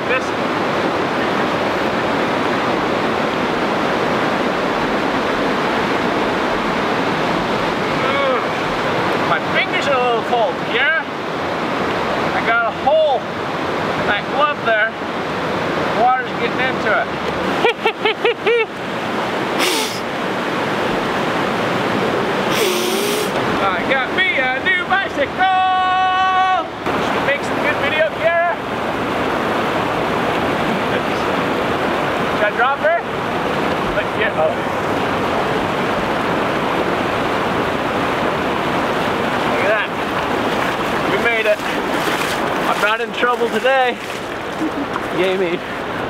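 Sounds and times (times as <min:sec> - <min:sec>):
river water rushing: 0:00.0 - 0:46.0
hissing bursts: 0:19.6 - 0:20.1, 0:22.5 - 0:23.4
short high-pitched calls: 0:19.6 - 0:20.1, 0:22.5 - 0:23.4.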